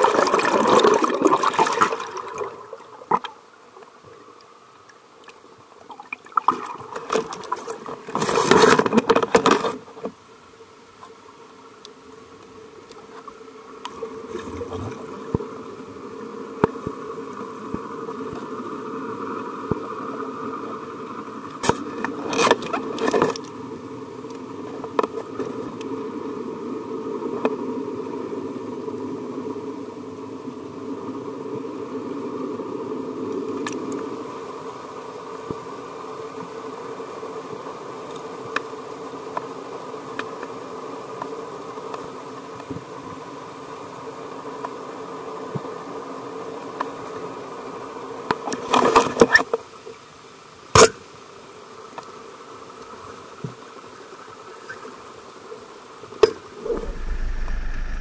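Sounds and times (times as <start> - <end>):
boat engine hum underwater: 56.5 - 58.0.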